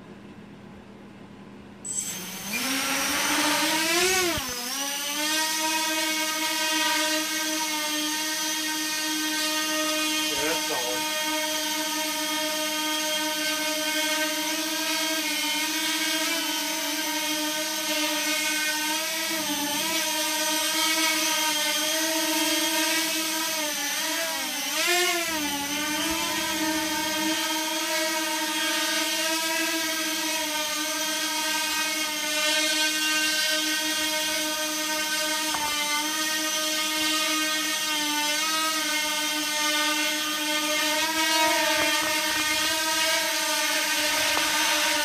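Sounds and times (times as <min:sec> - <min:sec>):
drone propellers whining: 0:01.9 - 0:06.1, 0:16.0 - 0:45.0.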